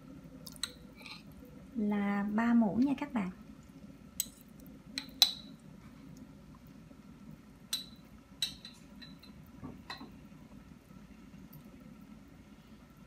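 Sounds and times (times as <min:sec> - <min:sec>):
spoon clinking against pot: 0:05.0 - 0:05.6, 0:07.7 - 0:10.1.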